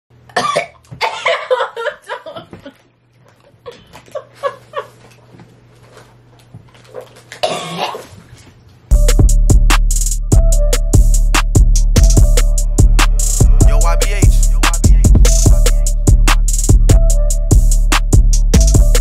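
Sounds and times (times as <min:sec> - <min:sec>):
women laughing and giggling: 0:01.3 - 0:05.2.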